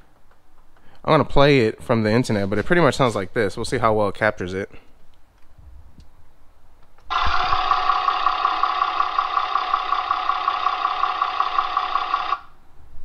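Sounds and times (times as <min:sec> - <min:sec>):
car engine idling with fast ticking: 0:07.1 - 0:12.4.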